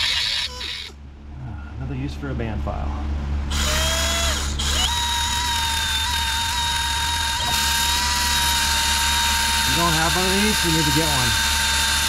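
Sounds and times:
belt sander whining: 3.4 - 12.0.

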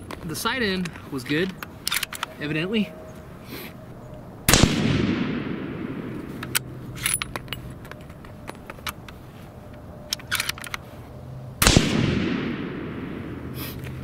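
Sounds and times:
rifle bolt clicking: 0.8 - 2.3, 10.1 - 10.8
rifle shots with long echo: 4.5 - 6.3, 11.6 - 13.6.

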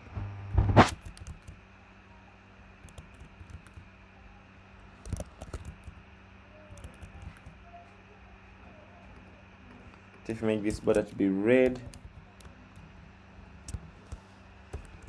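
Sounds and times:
faint steady hum: 0.0 - 15.0
computer keyboard keystrokes: 0.9 - 1.6, 2.8 - 3.8, 5.0 - 6.0, 6.7 - 7.6, 10.7 - 12.8, 13.6 - 15.0.

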